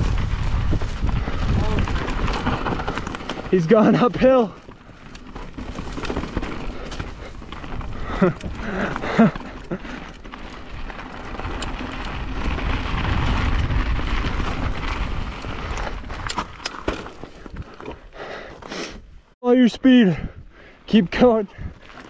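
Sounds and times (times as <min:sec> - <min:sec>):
wind on microphone: 0:00.0 - 0:03.2
bike tyres rolling over gravel: 0:00.0 - 0:18.6.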